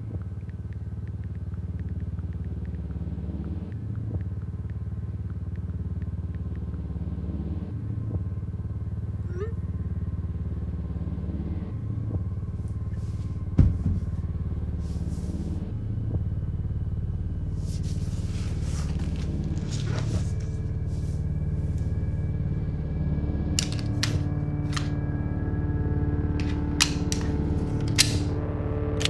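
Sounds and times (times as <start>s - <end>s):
low pulsing rumbling drone: 0.0s - 29.0s
pistol metallic clicks: 26.4s - 28.3s.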